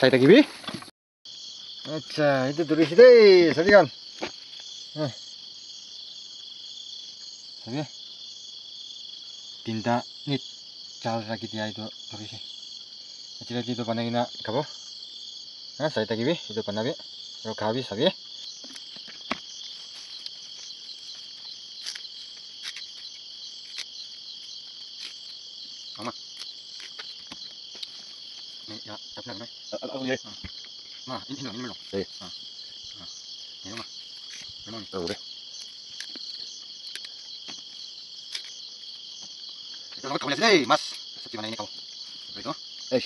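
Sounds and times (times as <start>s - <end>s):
night insects chirping: 0.0s - 43.0s
leaves rustling: 18.6s - 29.0s.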